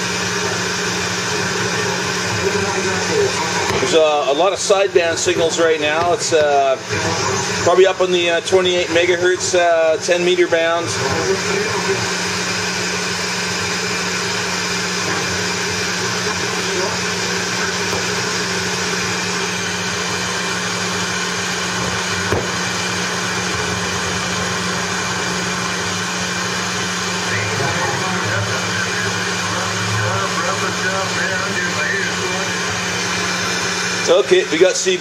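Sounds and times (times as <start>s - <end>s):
radio static hiss: 0.2s - 35.0s.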